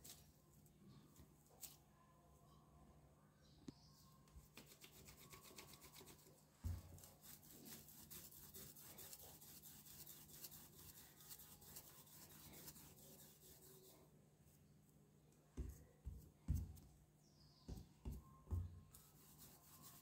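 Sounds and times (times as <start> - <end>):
hands rubbing wet clay: 4.3 - 13.9.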